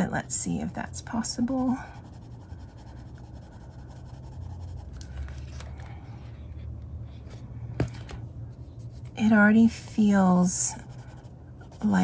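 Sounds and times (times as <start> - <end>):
colored pencil scratching on paper: 0.0 - 5.0, 10.3 - 12.0
steady low hum: 0.0 - 12.0.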